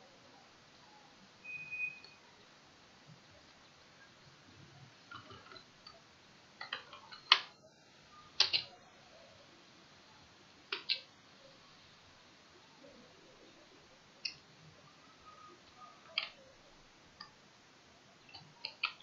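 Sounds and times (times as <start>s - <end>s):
keyboard clicks: 8.4s - 8.7s, 10.7s - 11.1s, 15.7s - 16.4s, 18.3s - 19.0s
mouse clicks: 8.4s - 8.7s, 10.7s - 11.1s, 18.3s - 19.0s.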